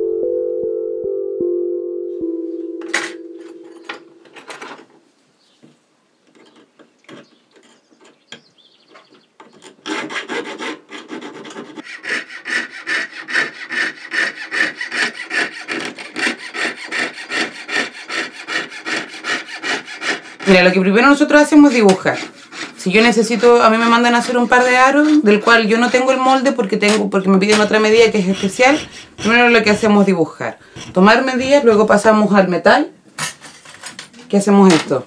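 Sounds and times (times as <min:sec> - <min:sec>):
saw cutting metal sheet: 0:09.9 - 0:20.6, 0:21.6 - 0:26.4, 0:27.5 - 0:30.1, 0:30.7 - 0:32.0.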